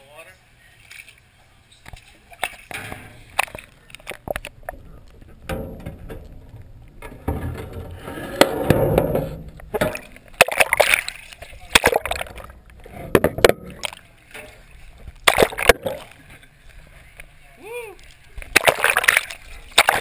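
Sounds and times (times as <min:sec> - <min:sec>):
muffled churning water: 0:00.0 - 0:20.0
sharp knocks underwater: 0:02.4 - 0:16.2, 0:18.4 - 0:20.0.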